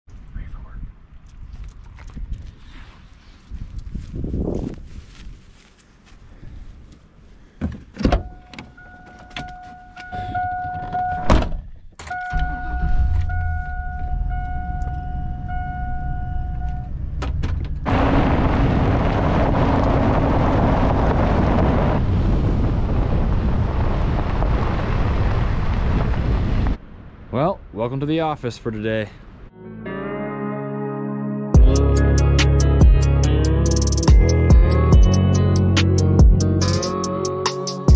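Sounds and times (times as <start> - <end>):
wind noise: 0.1 - 7.3, 10.1 - 27.4
warning chime beeping: 12.1 - 16.9
truck driving on gravel: 17.8 - 26.6.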